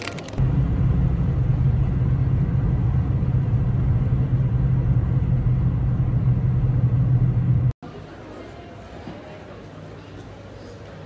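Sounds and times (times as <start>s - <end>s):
car interior road rumble: 0.4s - 7.7s.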